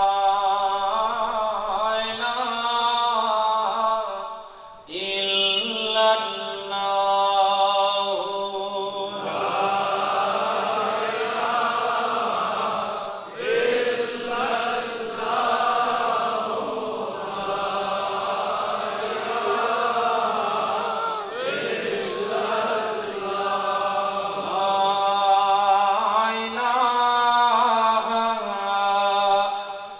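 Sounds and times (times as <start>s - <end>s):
male congregation chanting: 0.0s - 29.9s
single voice holding a long note: 19.3s - 23.3s.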